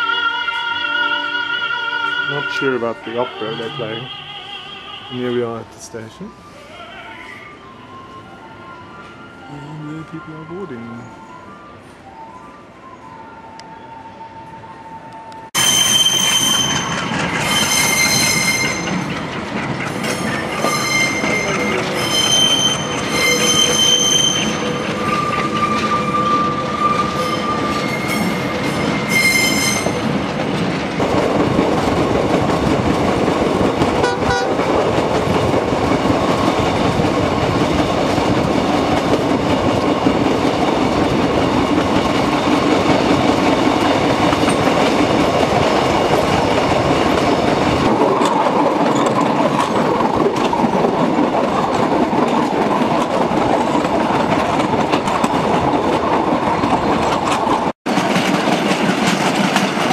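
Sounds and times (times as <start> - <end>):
train wheels rumbling on rails: 15.2 - 59.9
locomotive horn blasts: 34.0 - 34.6.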